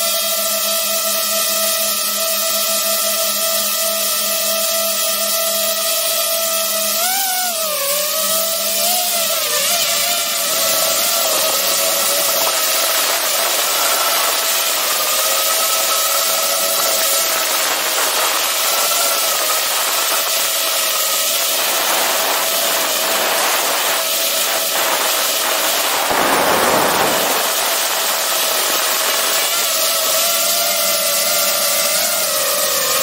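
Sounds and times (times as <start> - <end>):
quadcopter motors whining: 0.0 - 33.0
rushing air hiss: 8.0 - 30.2
wind noise: 8.1 - 30.2.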